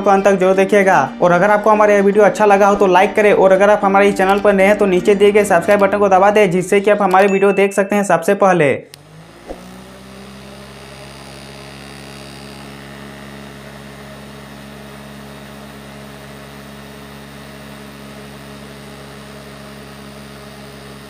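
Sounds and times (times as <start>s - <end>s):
electric fan motor humming: 8.9s - 21.0s.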